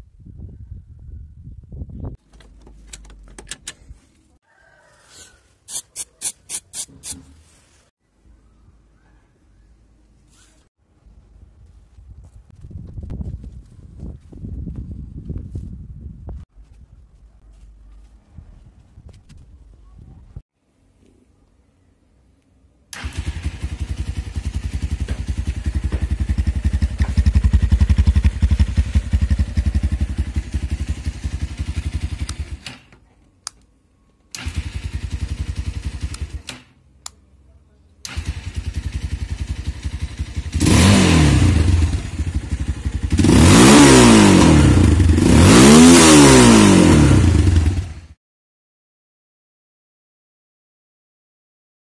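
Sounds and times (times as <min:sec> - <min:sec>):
motorcycle engine idling and revving: 0:23.0 - 0:32.9, 0:34.3 - 0:36.8, 0:38.1 - 0:48.2.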